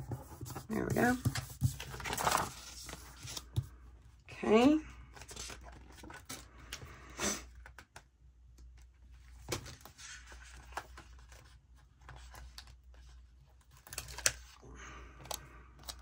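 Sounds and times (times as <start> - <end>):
paper rustling: 0.0 - 3.7, 5.2 - 6.5, 9.3 - 14.5.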